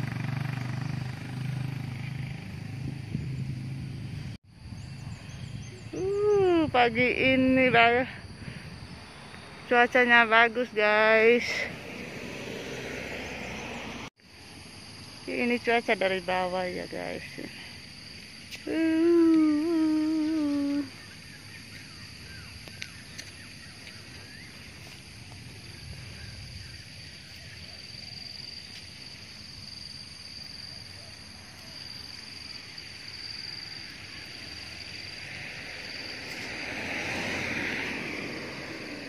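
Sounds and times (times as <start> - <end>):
high insect drone: 0.0 - 39.0.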